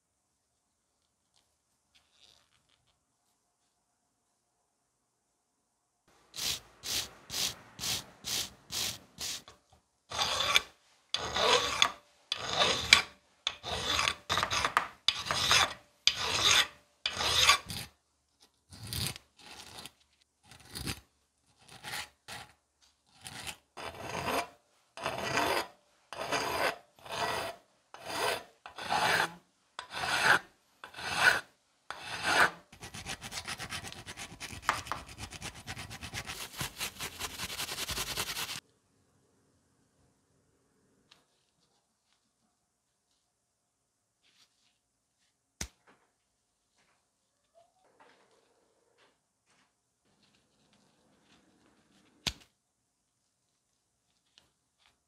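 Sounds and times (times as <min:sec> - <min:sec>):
wire brush strokes: 0:06.4 - 0:09.6, 0:34.4 - 0:38.6
needle file rasping on metal: 0:10.1 - 0:17.9, 0:23.2 - 0:38.6.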